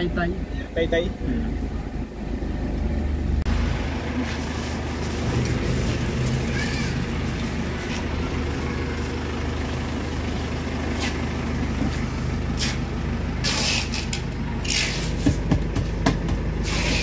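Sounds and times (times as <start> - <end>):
vehicle engine idling: 0.0 - 17.0
wrapped doors rustling and scraping: 4.2 - 9.4, 10.8 - 17.0.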